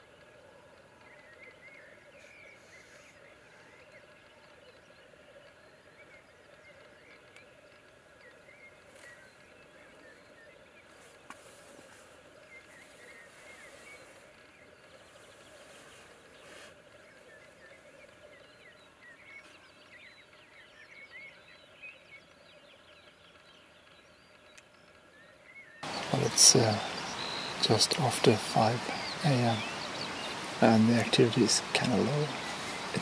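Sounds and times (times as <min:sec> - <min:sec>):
grouse hissing bursts: 0:25.8 - 0:33.0.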